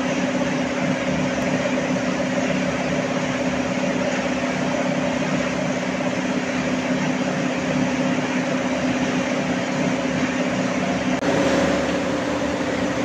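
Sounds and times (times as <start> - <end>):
stone crushing machinery running: 0.0 - 13.0.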